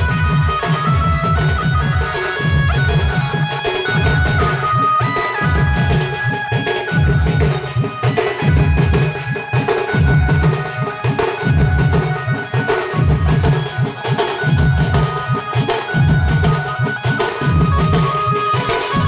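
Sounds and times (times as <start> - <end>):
barrel drums beaten fast: 0.0 - 19.0
high reedy wind melody: 0.0 - 19.0.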